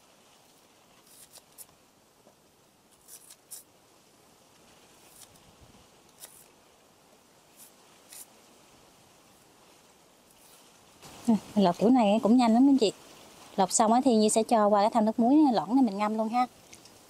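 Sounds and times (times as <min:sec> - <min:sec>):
blade scraping banana skin: 0:01.0 - 0:01.8, 0:02.9 - 0:03.7, 0:05.0 - 0:05.5, 0:06.1 - 0:06.6, 0:07.5 - 0:08.4.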